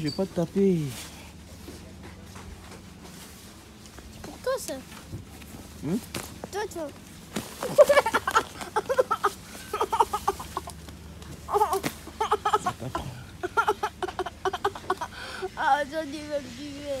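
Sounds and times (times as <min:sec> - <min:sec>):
boy laughing hard: 0:07.6 - 0:10.8, 0:11.5 - 0:15.6.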